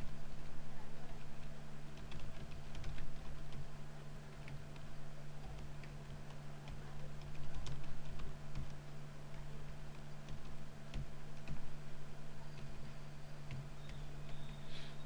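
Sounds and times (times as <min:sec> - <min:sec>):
steady low hum: 0:00.0 - 0:15.0
keyboard key clicks: 0:04.3 - 0:11.8.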